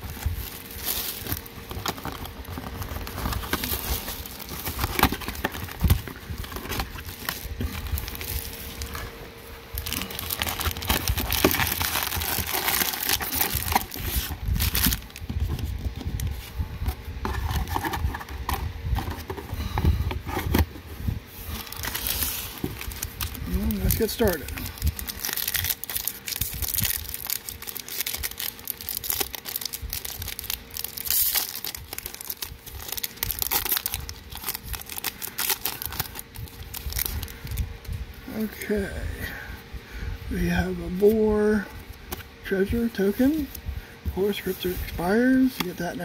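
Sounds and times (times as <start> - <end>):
plastic shrink wrap crinkling: 0.0 - 19.5, 21.5 - 38.7
cardboard box and foil packs rustling: 0.0 - 38.9, 40.4 - 46.0.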